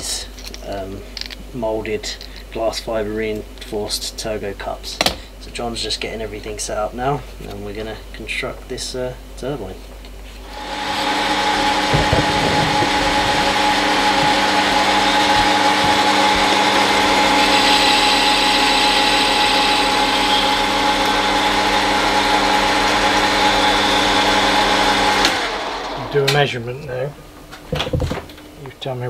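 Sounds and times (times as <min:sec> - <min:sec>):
lathe motor and gear whine: 0:10.4 - 0:28.5.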